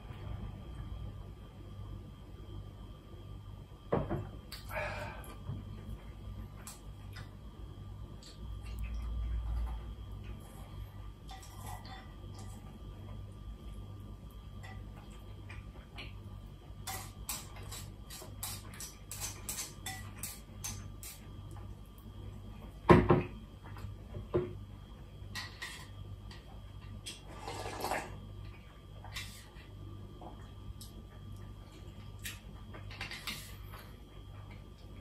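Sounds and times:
person slurping noodles: 27.3s - 28.1s.

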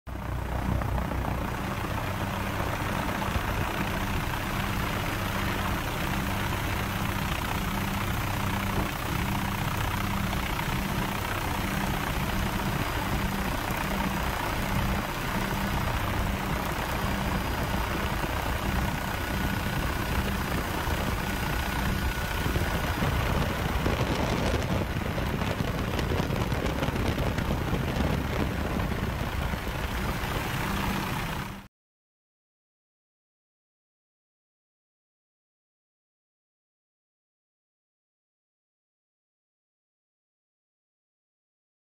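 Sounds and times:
helicopter engine and rotor: 0.1s - 31.7s.

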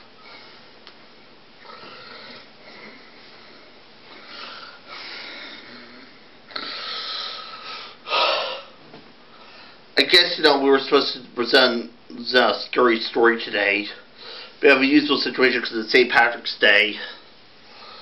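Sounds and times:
man breathing: 1.6s - 9.9s, 14.1s - 14.6s, 17.0s - 18.0s.

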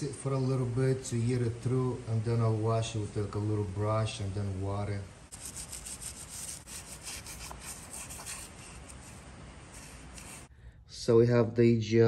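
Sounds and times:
brushes scrubbing metal: 5.3s - 10.5s.

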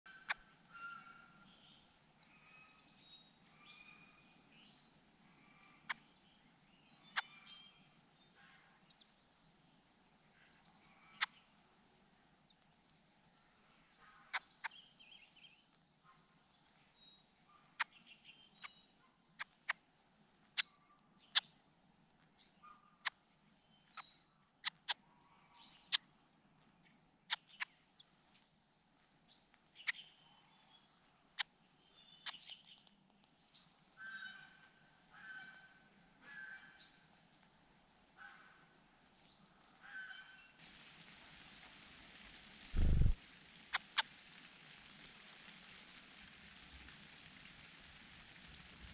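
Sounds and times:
bird chick begging calls: 0.7s - 3.3s, 4.1s - 32.7s.

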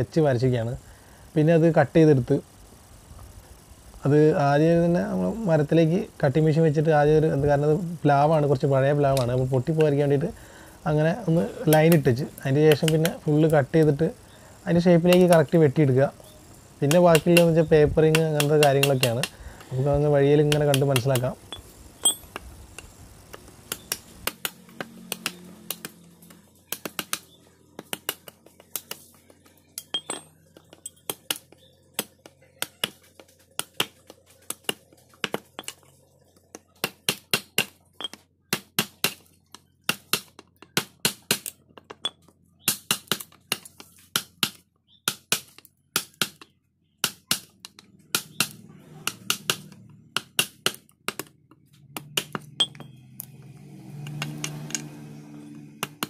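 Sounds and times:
hammer striking chisel into wood: 44.2s - 51.3s, 52.0s - 53.0s, 55.8s - 56.0s.

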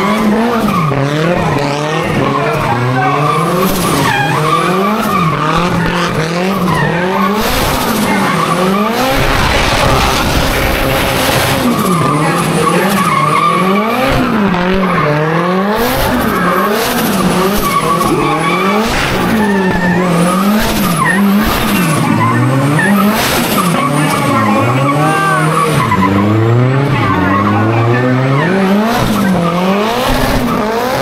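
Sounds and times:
car engine revving: 0.0s - 31.0s
high whine: 8.9s - 12.6s.

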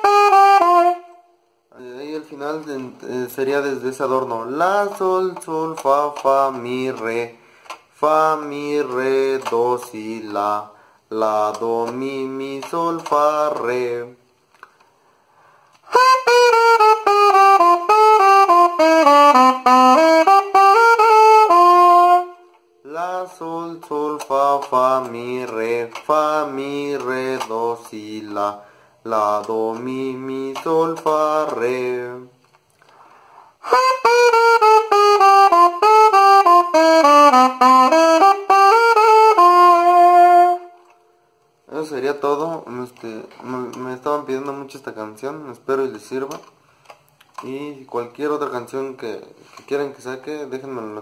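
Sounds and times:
saxophone melodic run: 0.0s - 1.3s, 15.8s - 22.9s, 33.6s - 41.0s.

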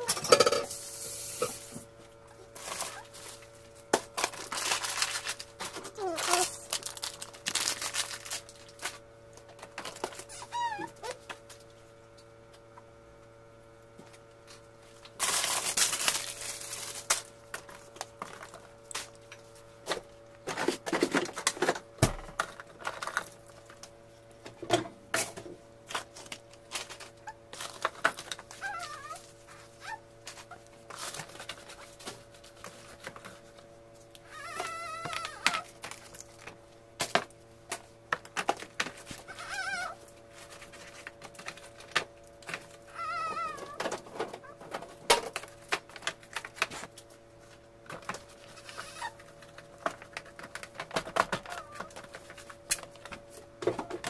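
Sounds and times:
steady fridge hum: 0.0s - 54.0s
plastic bags rustling: 2.4s - 11.2s, 14.5s - 21.8s, 25.8s - 33.7s, 34.4s - 36.6s, 37.7s - 53.3s.

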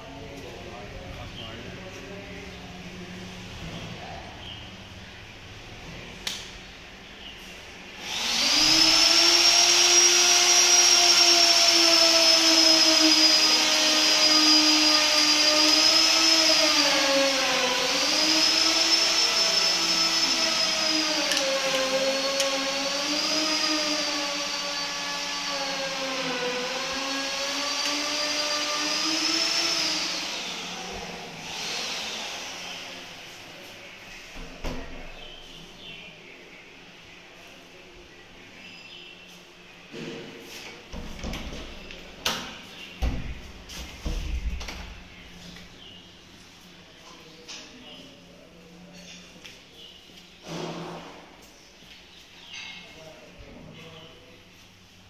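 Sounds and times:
electric motor humming: 8.0s - 33.0s.

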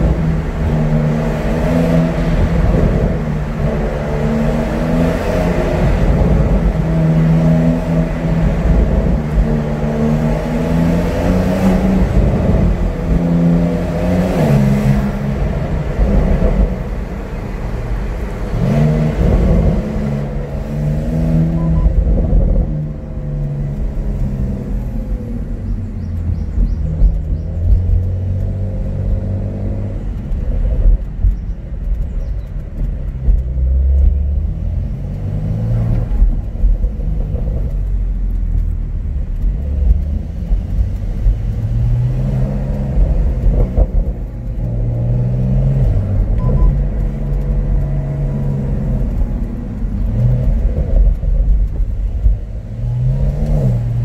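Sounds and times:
car engine accelerating: 0.0s - 54.0s.

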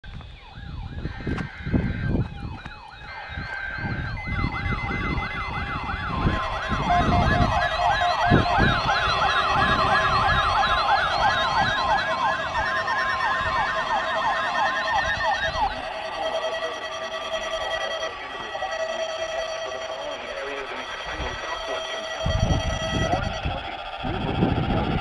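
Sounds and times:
warbling alert alarms: 0.1s - 25.0s.

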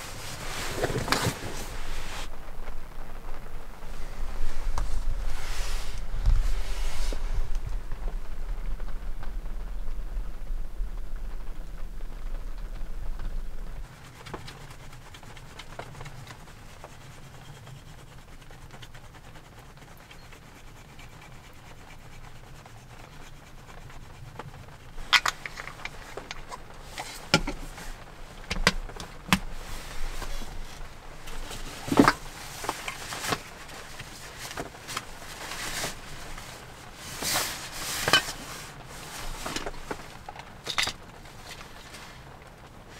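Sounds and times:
fabric pouch rustling: 0.0s - 2.3s, 3.8s - 7.5s, 24.8s - 40.3s
rain on camper roof: 0.0s - 42.9s.

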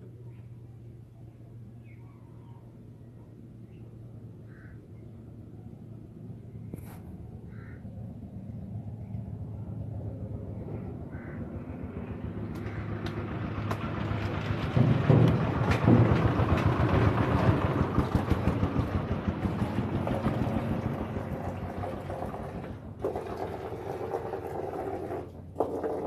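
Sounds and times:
vehicle engine passing by: 9.2s - 23.6s.

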